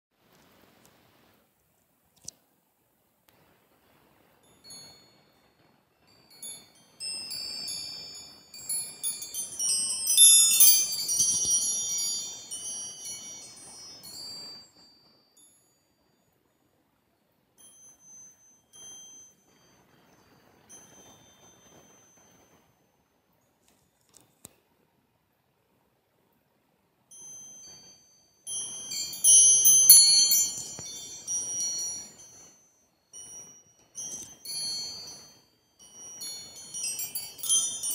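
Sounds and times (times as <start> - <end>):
metal wind chime ringing: 4.4 - 16.4, 17.6 - 22.9, 27.1 - 37.9.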